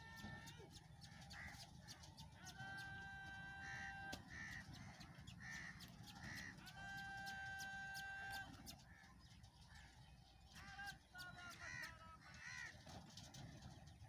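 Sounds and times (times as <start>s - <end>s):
harsh bird calls: 0.0s - 14.0s
bird held tone call: 6.6s - 8.7s.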